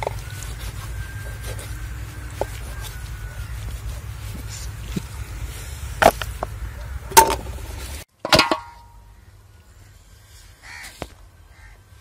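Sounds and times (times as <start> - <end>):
crow cawing: 10.6 - 11.8.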